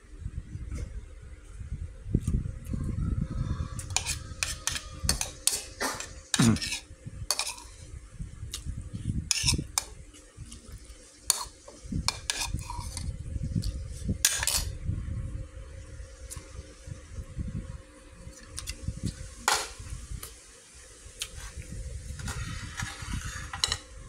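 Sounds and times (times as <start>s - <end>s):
metal spoon scraping bowl: 3.8s - 7.9s, 9.3s - 10.0s, 11.3s - 14.8s, 22.2s - 23.9s.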